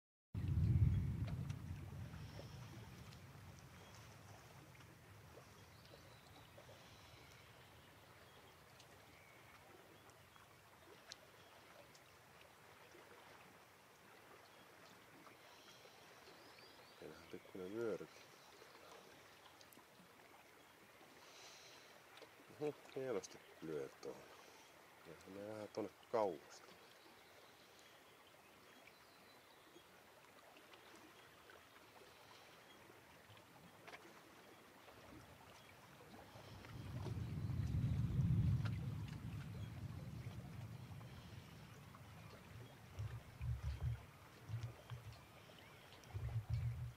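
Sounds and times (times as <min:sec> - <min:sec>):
distant thunder rumbling: 0:00.4 - 0:03.1, 0:36.8 - 0:44.0
soft ticks: 0:43.0 - 0:45.2.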